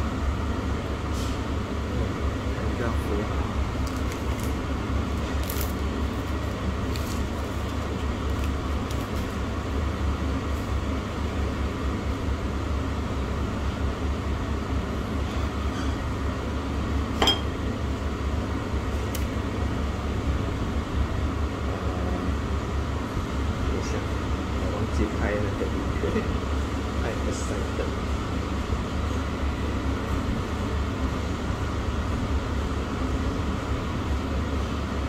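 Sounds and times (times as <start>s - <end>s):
tableware clink: 17.2s - 17.5s.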